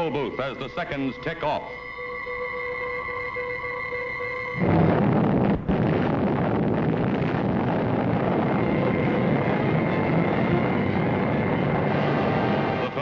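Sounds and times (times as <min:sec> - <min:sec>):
explosion rumbling roar: 0:04.6 - 0:13.0.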